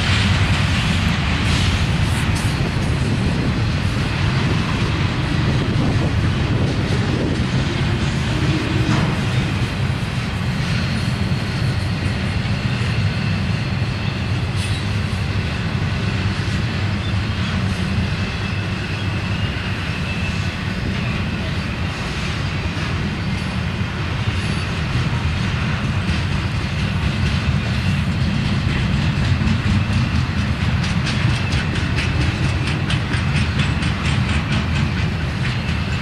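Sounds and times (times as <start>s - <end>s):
train wheels rumbling on rails: 0.0s - 36.0s
faint high wheel squeal: 10.6s - 25.1s.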